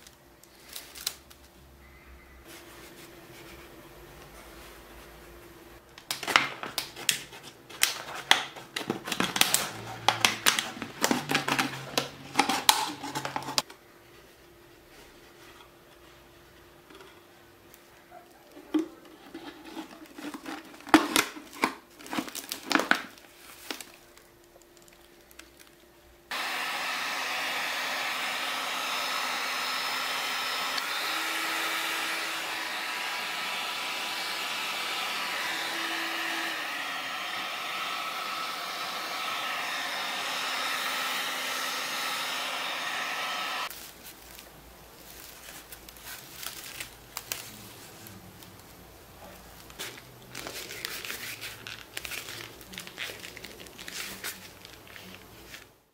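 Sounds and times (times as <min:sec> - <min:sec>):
plastic bottle crinkling: 0:18.7 - 0:25.8
hot-air gun blowing: 0:26.3 - 0:43.7.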